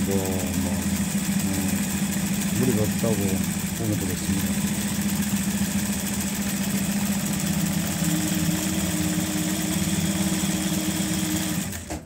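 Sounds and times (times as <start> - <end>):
sewing machine running: 0.0 - 12.0.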